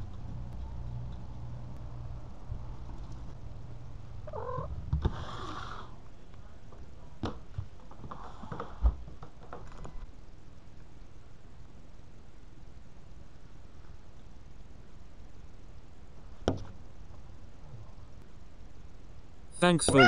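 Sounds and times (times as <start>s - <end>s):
steady low rumble: 0.0s - 4.9s
cat call: 4.2s - 4.7s.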